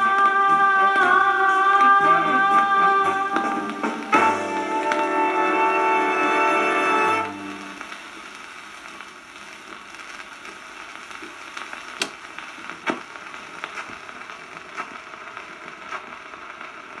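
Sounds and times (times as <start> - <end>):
record surface hiss and crackle: 0.0 - 17.0
sharp record clicks: 9.6 - 17.0.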